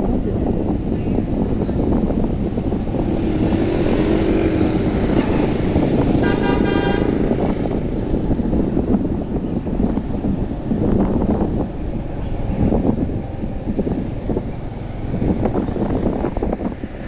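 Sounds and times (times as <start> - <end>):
motorcycle traffic rumble: 0.0 - 17.0
vehicle horn short beeps: 6.2 - 7.2.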